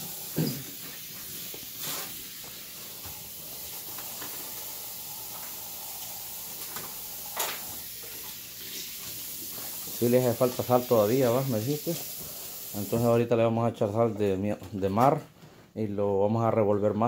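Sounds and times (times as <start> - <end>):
water running from a tap: 0.0 - 13.2.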